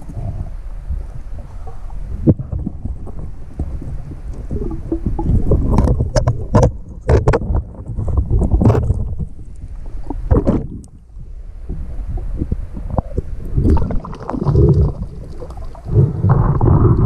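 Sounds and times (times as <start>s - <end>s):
muffled underwater rumble: 0.0s - 17.0s
water splashes: 11.7s - 17.0s.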